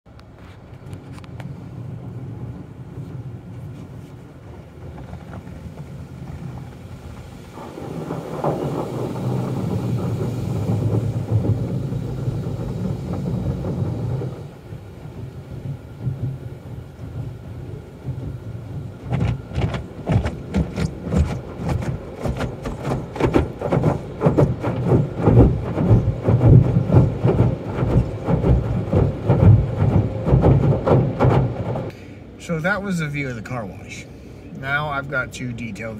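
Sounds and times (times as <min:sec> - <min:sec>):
water spraying on windshield: 0:01.0 - 0:31.9
car wash brushes slapping: 0:03.0 - 0:32.0.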